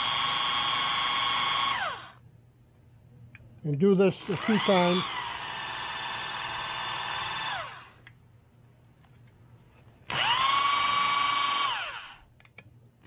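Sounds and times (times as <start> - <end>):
electric drill whining: 0.0 - 2.2, 4.2 - 8.0, 10.1 - 12.2.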